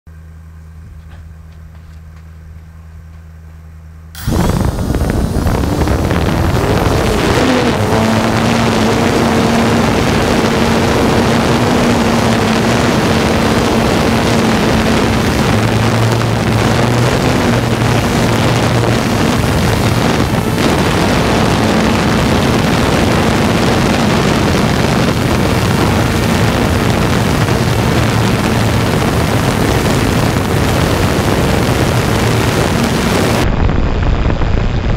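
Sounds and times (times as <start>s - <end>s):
quadcopter motors buzzing: 4.2s - 33.4s.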